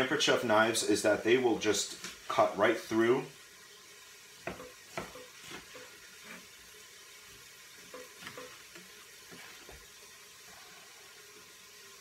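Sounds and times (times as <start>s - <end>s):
faint sizzle: 0.0s - 12.0s
knife knocking on cutting board: 4.4s - 5.9s.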